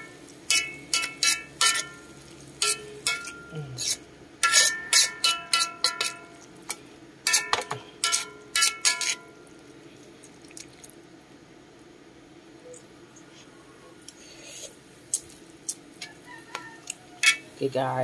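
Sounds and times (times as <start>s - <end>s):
metal ladle clanking on wok: 0.5s - 9.3s, 17.2s - 17.6s.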